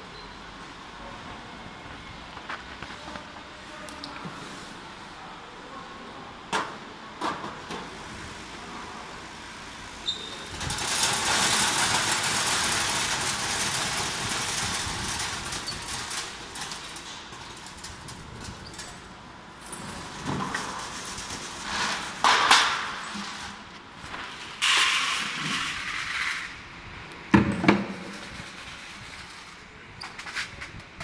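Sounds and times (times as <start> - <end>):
sorting machine hiss and rattle: 10.4 - 19.0, 19.6 - 23.6
kernels rattling in tray: 10.6 - 18.2.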